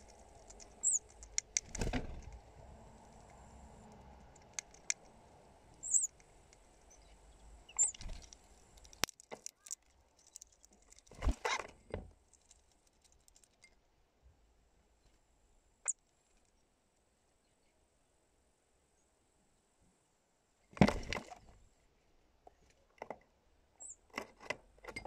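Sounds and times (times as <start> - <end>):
high bird calls: 0.0 - 1.2, 5.8 - 6.2, 6.8 - 8.2.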